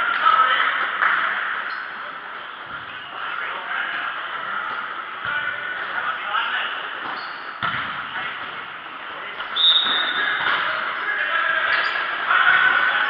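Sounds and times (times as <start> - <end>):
ball being kicked: 7.6 - 8.0.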